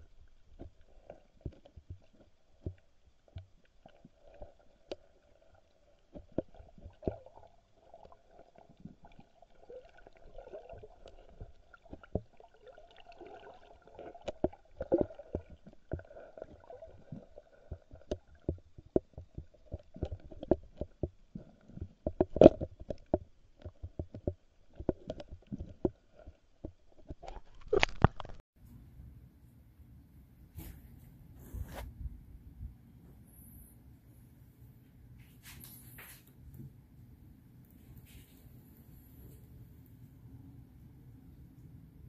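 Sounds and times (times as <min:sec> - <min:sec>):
muffled underwater clicks and knocks: 0:00.0 - 0:12.6, 0:13.7 - 0:28.4
faint steady hum: 0:28.6 - 0:42.0.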